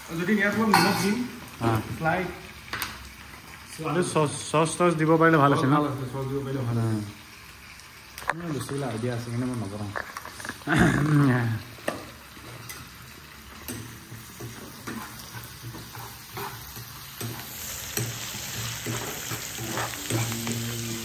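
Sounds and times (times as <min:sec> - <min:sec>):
food sizzling in hot oil: 0:00.0 - 0:21.0
steel spoon scraping a pan: 0:13.7 - 0:20.9.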